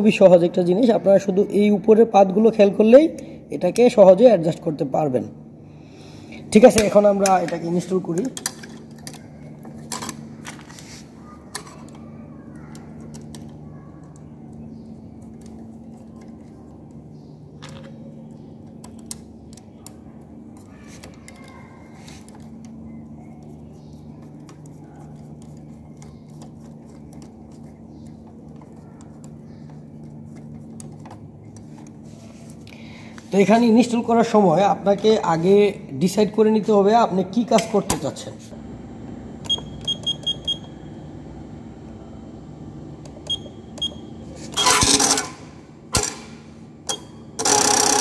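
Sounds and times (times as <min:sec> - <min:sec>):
steady low hum: 0:00.0 - 0:48.0
metal parts clicking and clinking: 0:07.3 - 0:10.8, 0:18.6 - 0:20.0.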